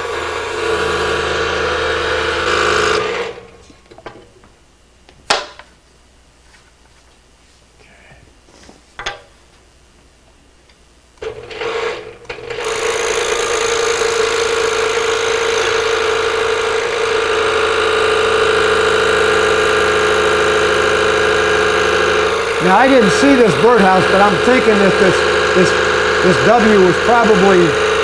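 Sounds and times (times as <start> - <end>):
scroll saw running: 0.0 - 3.5, 11.2 - 28.0.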